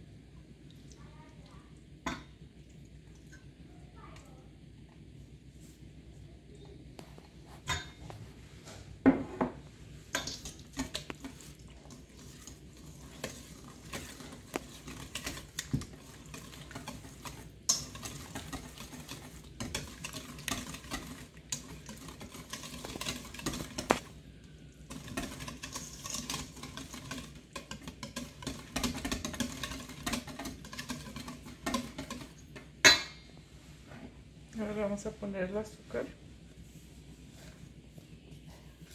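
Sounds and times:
wire whisk scraping metal bowl: 12.2 - 24.1, 24.8 - 32.6
whisk clinking against bowl: 12.8 - 24.1, 24.9 - 33.2.

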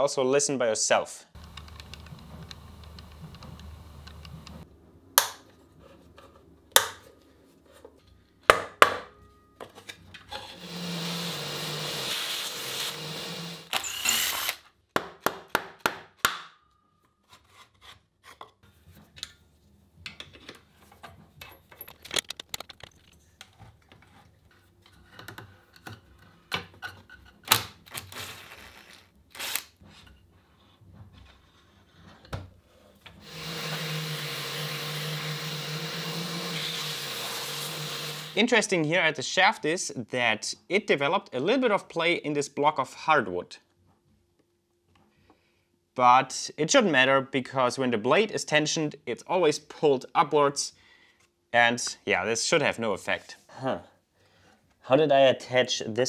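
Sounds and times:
shop vacuum running: 1.4 - 4.6, 10.5 - 14.5, 33.2 - 38.4.

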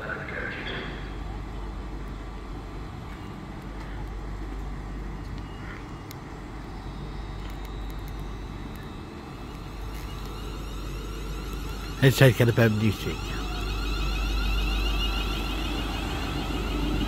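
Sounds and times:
faint high whine: 0.0 - 17.0
low rumble of vehicle noise: 0.0 - 17.0.

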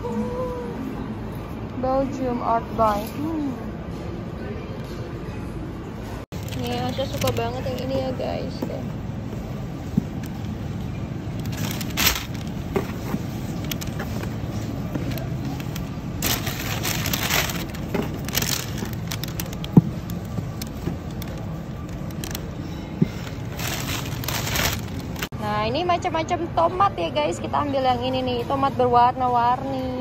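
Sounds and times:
supermarket background rumble: 0.0 - 30.0
fruit rustling in cardboard box: 11.4 - 19.8, 23.1 - 25.3.

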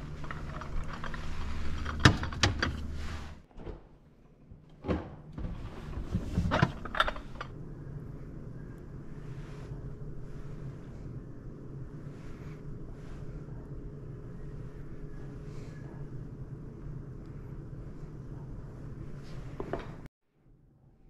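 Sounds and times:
refrigerator door opening and shutting: 0.6 - 7.5.

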